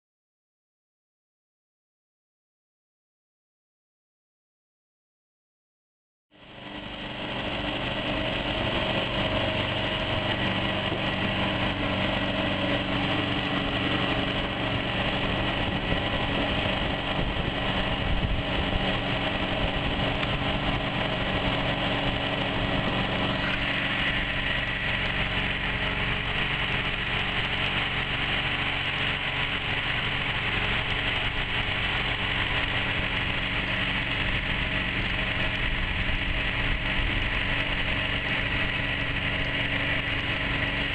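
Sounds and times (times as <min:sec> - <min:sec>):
outboard motor droning: 0:06.3 - 0:40.9.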